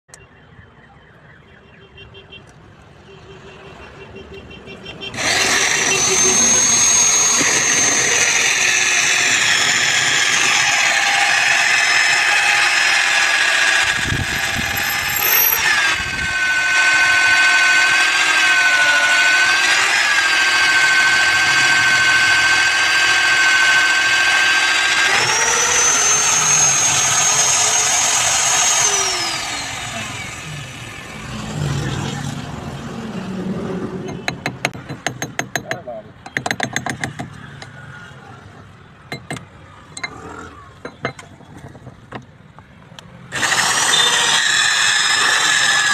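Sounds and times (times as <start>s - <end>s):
drill motor whining: 5.1s - 31.4s, 43.3s - 45.9s.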